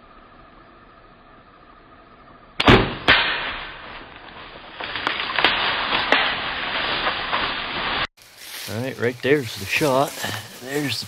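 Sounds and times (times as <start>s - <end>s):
bow shot crack: 2.6s - 8.0s
deer crashing through brush and leaves: 3.2s - 11.0s.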